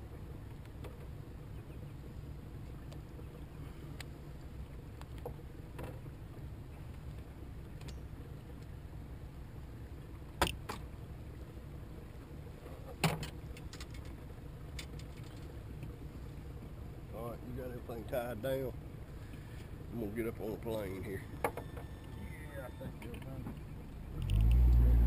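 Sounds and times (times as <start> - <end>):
low steady rumble: 0.0 - 25.0.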